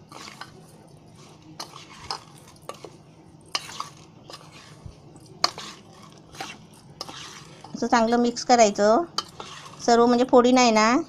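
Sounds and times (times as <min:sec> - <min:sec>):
spoon scraping a metal bowl: 0:00.0 - 0:08.5, 0:09.1 - 0:10.3.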